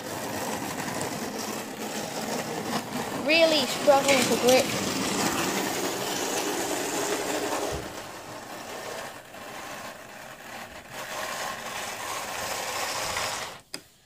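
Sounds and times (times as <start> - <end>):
model train motor whirring: 1.0 - 13.6.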